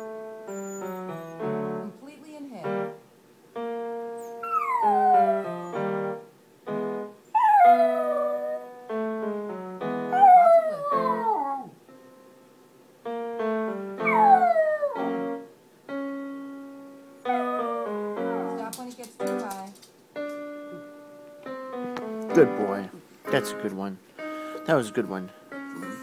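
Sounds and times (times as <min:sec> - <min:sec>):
piano notes: 0:00.0 - 0:26.0
dog howling: 0:04.4 - 0:05.8, 0:07.4 - 0:08.7, 0:10.1 - 0:11.8, 0:14.0 - 0:15.4, 0:17.2 - 0:18.7.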